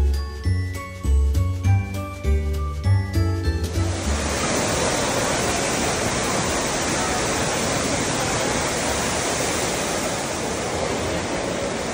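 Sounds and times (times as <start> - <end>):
fountain water splashing: 3.6 - 11.9.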